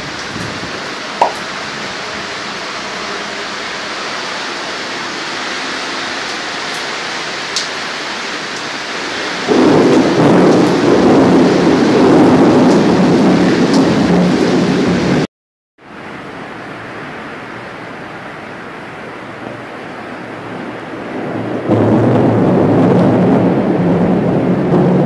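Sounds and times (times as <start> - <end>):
rain hissing: 0.0 - 25.0
low rumble of thunder: 8.5 - 15.3, 20.6 - 25.0.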